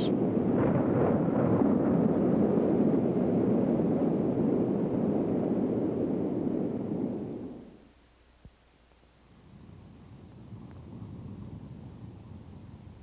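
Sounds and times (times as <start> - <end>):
storm wind roaring: 0.0 - 7.8.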